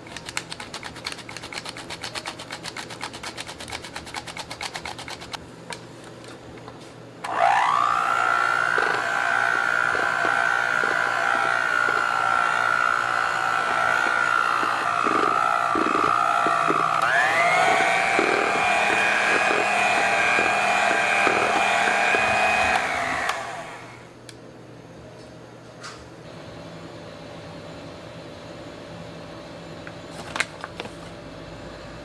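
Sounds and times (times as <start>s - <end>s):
electric hand mixer motor whine: 7.2s - 24.1s.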